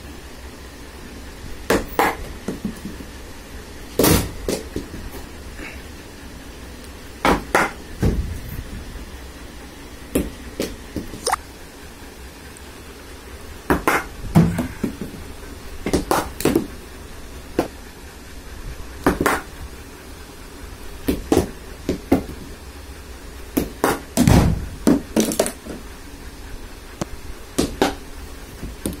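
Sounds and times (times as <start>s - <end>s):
ball bouncing on tiled floor: 1.7s - 3.1s, 7.2s - 8.2s, 15.8s - 16.7s, 21.0s - 22.4s, 23.6s - 25.7s, 27.6s - 28.0s.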